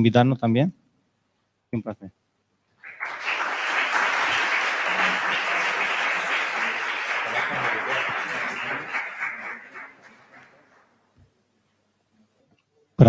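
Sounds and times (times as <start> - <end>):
audience applauding: 2.8 - 10.9.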